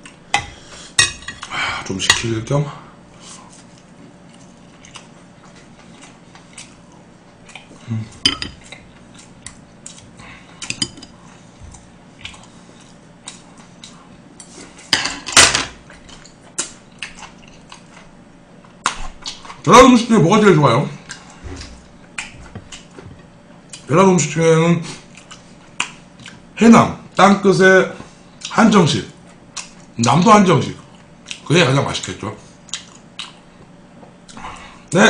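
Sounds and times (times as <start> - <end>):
eating sounds: 3.2 - 14.6, 30.8 - 33.5.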